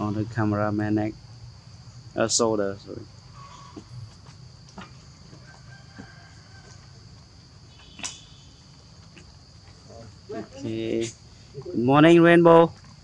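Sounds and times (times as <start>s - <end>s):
insects droning: 0.0s - 13.0s
faint rooster crowing: 3.3s - 4.1s, 5.0s - 7.4s.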